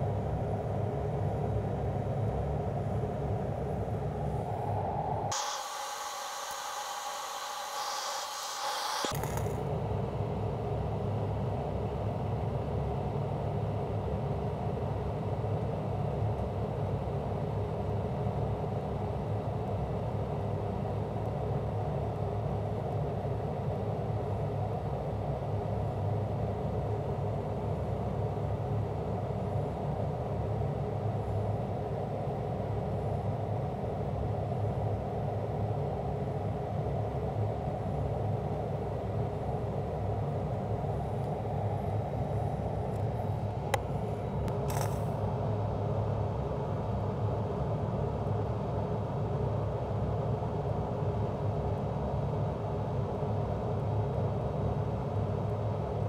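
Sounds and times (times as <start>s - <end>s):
fume extractor rushing air: 3.4s - 9.6s
quiet welding arc: 5.3s - 9.7s, 43.7s - 45.2s.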